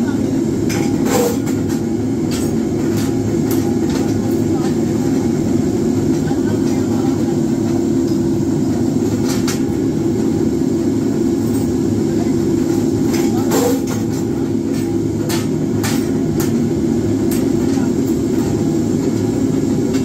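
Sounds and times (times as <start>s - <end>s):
power press droning: 0.6s - 3.8s, 13.2s - 14.2s.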